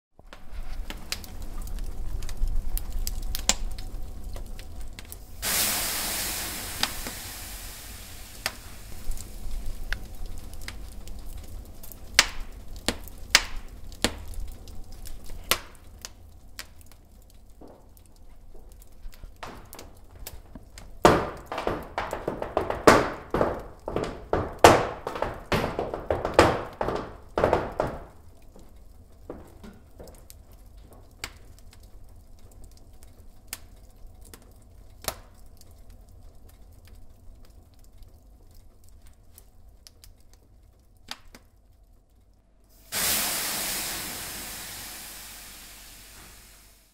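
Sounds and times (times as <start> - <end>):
water hissing on hot stones: 0.4 - 38.0, 42.7 - 46.9
shoes stamping on wooden floor: 19.4 - 19.8, 20.5 - 28.2.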